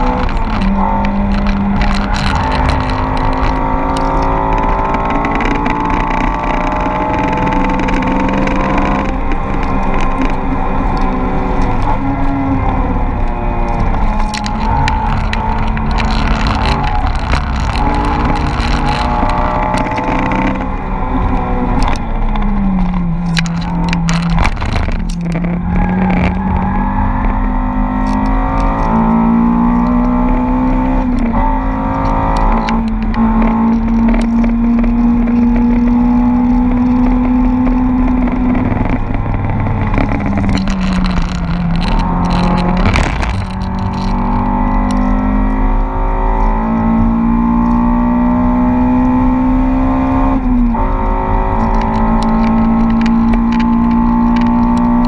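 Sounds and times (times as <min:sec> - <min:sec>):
car engine revving: 0:00.0 - 0:55.0
road noise: 0:00.0 - 0:55.0
wind noise: 0:00.0 - 0:55.0.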